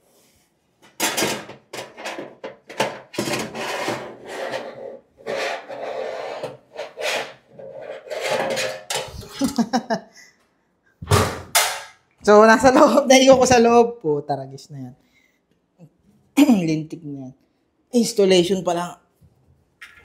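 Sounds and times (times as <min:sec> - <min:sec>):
metal drawer scraping and clunking: 0:01.0 - 0:09.2.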